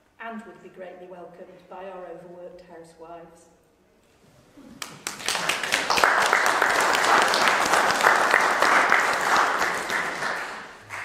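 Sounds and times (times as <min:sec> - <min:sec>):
audience applauding: 0:04.8 - 0:11.0.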